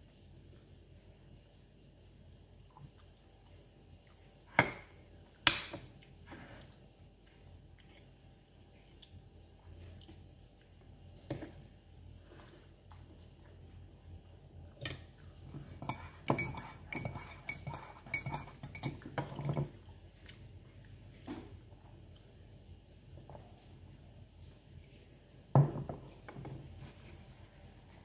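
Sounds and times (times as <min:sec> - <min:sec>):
fork clinking and scraping on dish: 0:15.7 - 0:19.7.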